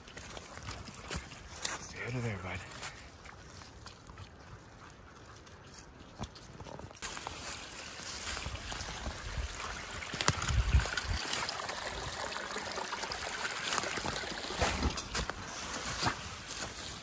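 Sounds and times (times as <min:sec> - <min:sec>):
water trickling: 0:07.1 - 0:15.4.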